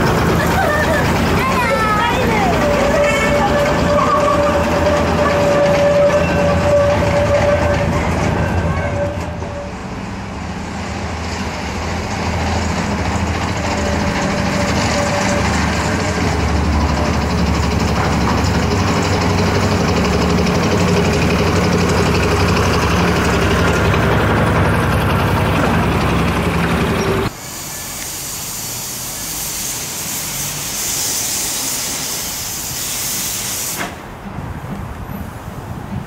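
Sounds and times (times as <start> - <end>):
diesel locomotive engine running: 0.0 - 36.0.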